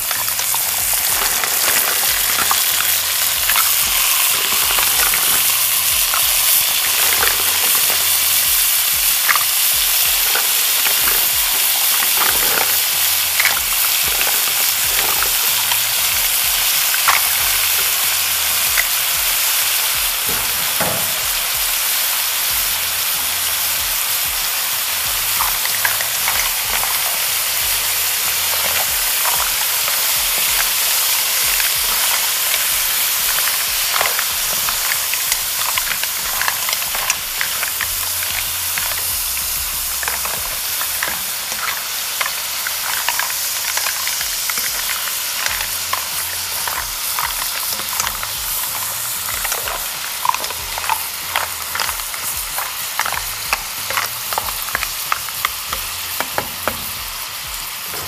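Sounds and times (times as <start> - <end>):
mussels sizzling in a pan: 0.0 - 58.0.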